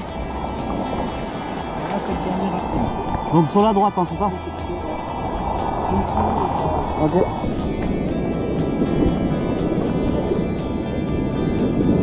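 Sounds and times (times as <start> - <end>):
paddle splashes: 0.0 - 3.6
whitewater rapid rushing: 0.0 - 10.3
background music with steady beat: 0.0 - 12.0.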